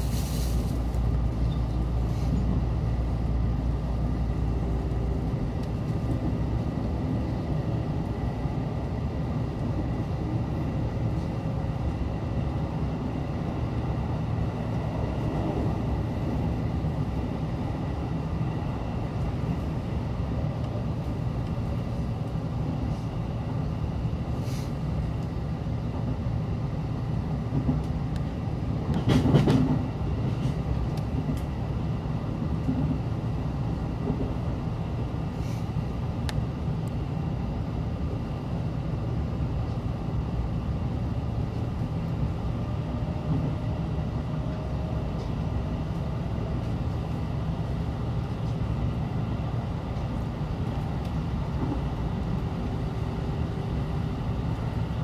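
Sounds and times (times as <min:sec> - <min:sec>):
train wheels rumbling on rails: 0:00.0 - 0:55.0
train clatter: 0:27.4 - 0:31.6, 0:32.3 - 0:33.1, 0:34.0 - 0:34.4, 0:42.9 - 0:55.0.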